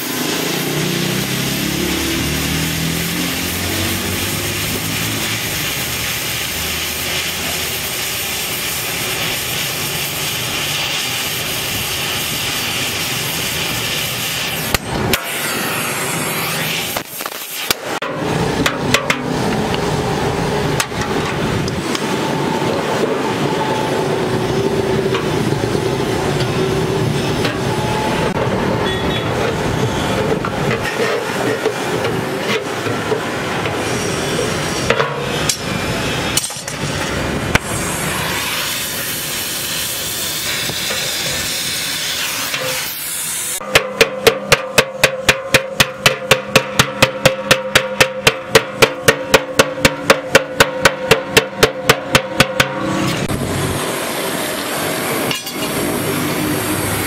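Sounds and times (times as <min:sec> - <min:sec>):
gas welding torch hissing: 0:00.0 - 0:18.6, 0:31.2 - 0:43.6, 0:52.8 - 0:57.0
hammer striking steel: 0:14.6 - 0:19.6, 0:34.8 - 0:37.7, 0:43.6 - 0:53.3, 0:55.3 - 0:55.8.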